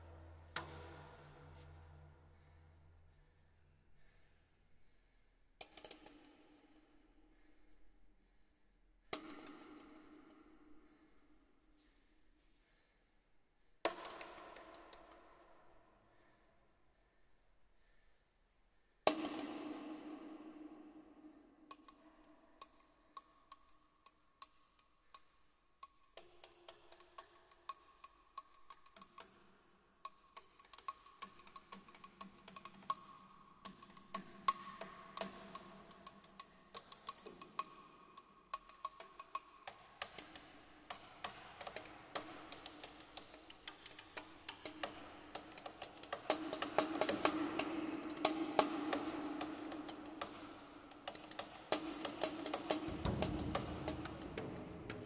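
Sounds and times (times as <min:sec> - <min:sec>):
drumsticks tapping wooden box: 0:41.7 - 0:55.0.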